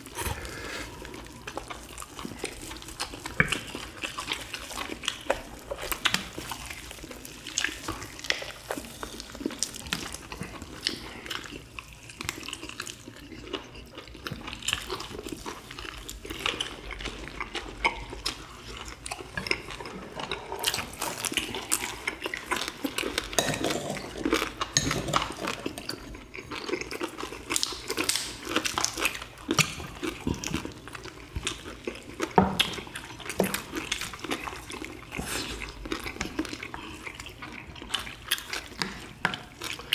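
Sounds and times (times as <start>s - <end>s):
people chewing chicken: 0.0s - 39.9s.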